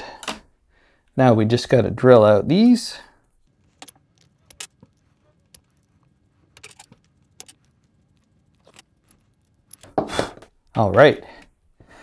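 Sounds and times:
clicks of plastic parts handled: 0:03.4 - 0:10.8.

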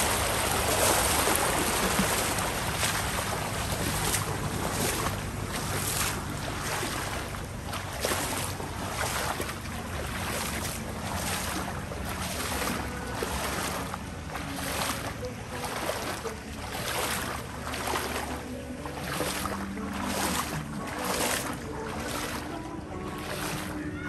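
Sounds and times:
low engine hum: 0:00.0 - 0:24.0
water rushing and splashing: 0:00.0 - 0:24.0.

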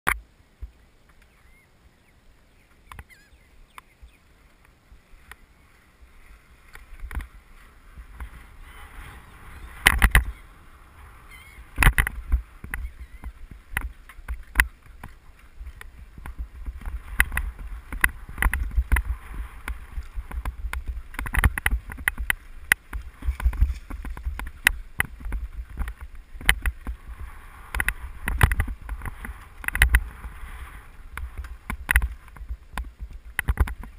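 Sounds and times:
wind rumble: 0:00.2 - 0:33.9
bicycle knocking and rattling: 0:06.7 - 0:10.5, 0:11.3 - 0:33.9.

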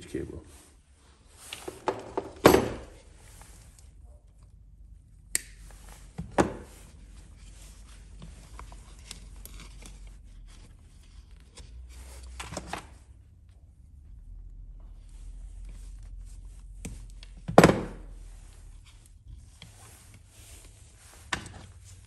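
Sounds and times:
wires and tools rustling: 0:00.0 - 0:22.0
sharp switch click: 0:05.3 - 0:05.6.

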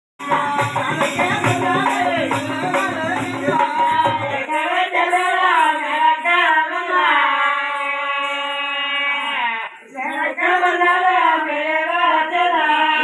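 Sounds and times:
hand drums beating: 0:00.2 - 0:04.6.

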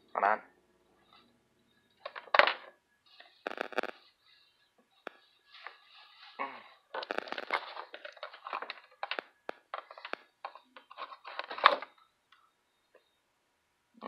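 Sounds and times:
fabric rustling on microphone: 0:03.2 - 0:08.8.

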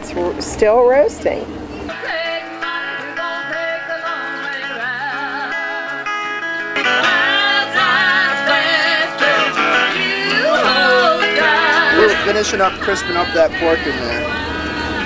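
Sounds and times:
guitar: 0:00.0 - 0:15.0
person singing: 0:01.9 - 0:05.9, 0:06.9 - 0:15.0.

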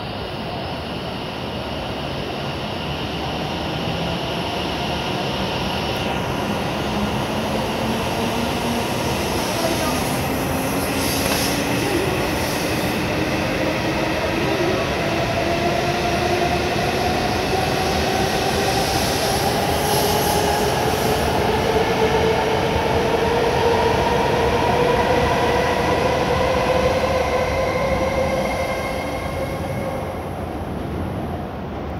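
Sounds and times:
rush of passing train: 0:00.0 - 0:31.9.

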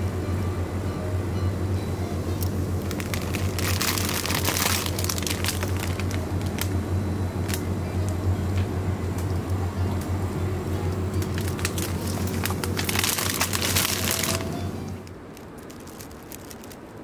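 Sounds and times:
steady low hum: 0:00.0 - 0:17.0
plastic packaging crinkling: 0:02.8 - 0:06.8, 0:11.2 - 0:17.0.

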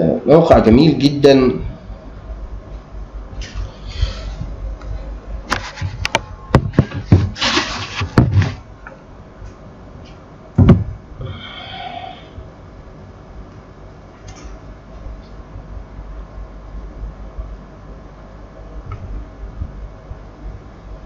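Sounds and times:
loud thump: 0:10.6 - 0:11.0.

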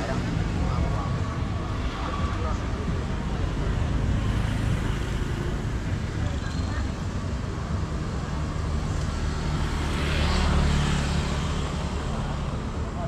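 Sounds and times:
street traffic: 0:00.0 - 0:13.0.

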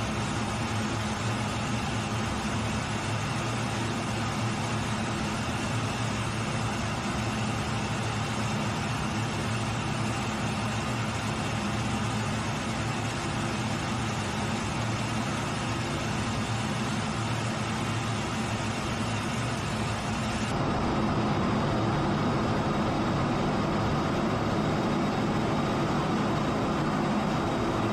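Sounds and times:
jet engine and airflow rushing hum: 0:00.0 - 0:27.9.

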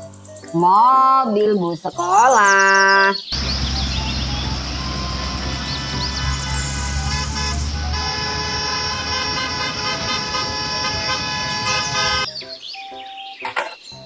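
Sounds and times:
heavy low rumble: 0:03.4 - 0:11.6
bus diesel engines running: 0:03.4 - 0:12.3
tyres hissing on wet road: 0:03.4 - 0:12.3.

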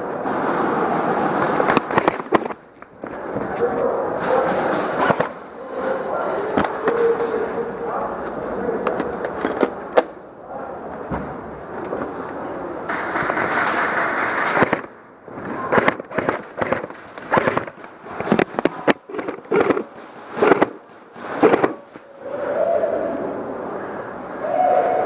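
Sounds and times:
rustling and handling noise: 0:00.8 - 0:09.8, 0:14.5 - 0:22.1
airsoft guns popping: 0:01.5 - 0:03.2, 0:12.9 - 0:15.0, 0:15.6 - 0:21.9.

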